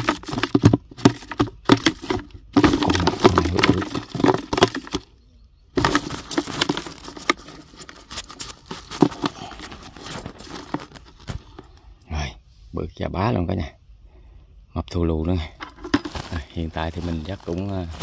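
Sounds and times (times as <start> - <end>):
crackling in plastic bucket: 0.0 - 5.1, 5.8 - 11.8, 15.6 - 18.0.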